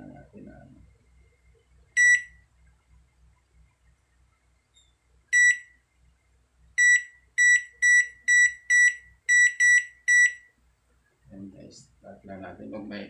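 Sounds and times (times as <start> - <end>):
microwave keypad beeps: 2.0 - 2.4, 5.4 - 5.7, 6.8 - 10.4.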